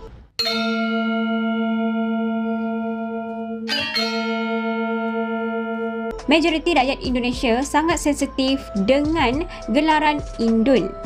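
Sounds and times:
low bell chime ringing: 0.4 - 7.8.

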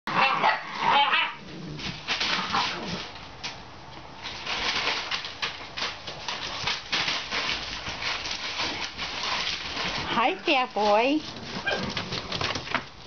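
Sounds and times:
puppies growling and whining: 0.1 - 3.1
paws scuffling on newspaper: 0.2 - 13.0.

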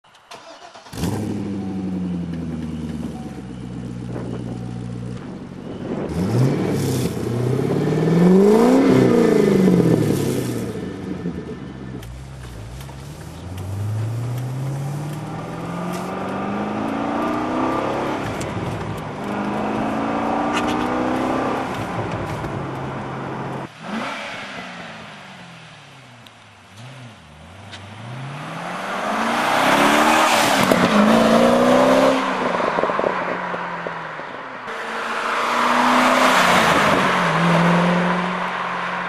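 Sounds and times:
car engine idling and revving: 0.1 - 39.0.

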